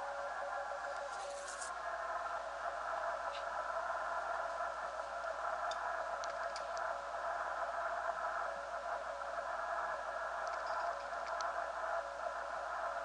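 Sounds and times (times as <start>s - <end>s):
radio band hiss: 0.0s - 13.0s
faint ticks: 10.4s - 11.5s.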